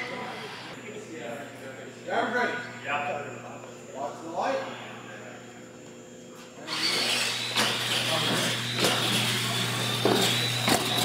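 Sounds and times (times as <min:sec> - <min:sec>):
toy truck motors whining: 0:06.7 - 0:11.0.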